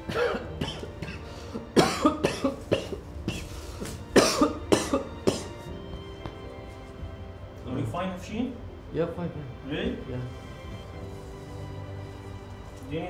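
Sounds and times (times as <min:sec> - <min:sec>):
man coughing: 0:00.1 - 0:03.5, 0:04.1 - 0:05.6.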